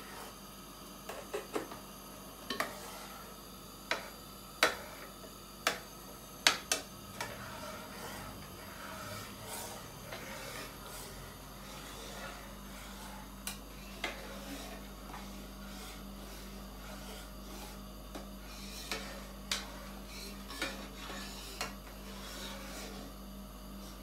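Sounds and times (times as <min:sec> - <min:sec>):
metal spoon scraping a pot: 0:02.5 - 0:03.3, 0:06.7 - 0:23.1.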